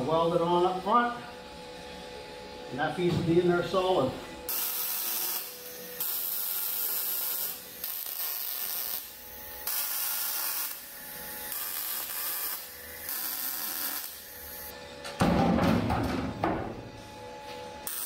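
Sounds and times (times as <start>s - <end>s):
welding arc crackling hiss: 4.5s - 14.7s.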